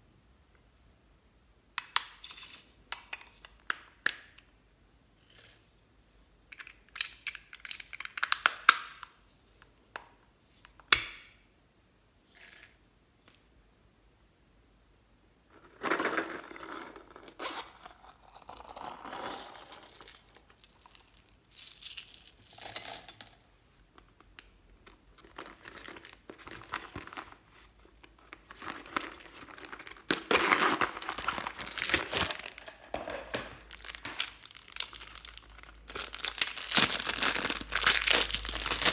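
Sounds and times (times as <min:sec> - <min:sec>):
slime crinkling and rustling: 0:25.1 - 0:38.9
plastic zip bag crinkling: 0:28.2 - 0:38.9.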